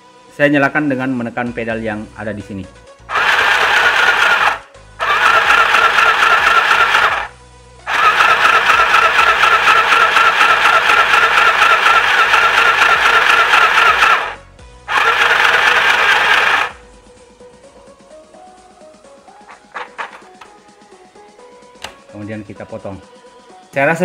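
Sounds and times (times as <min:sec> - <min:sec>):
sewing machine motor whining: 0:03.1 - 0:07.3, 0:07.9 - 0:16.8.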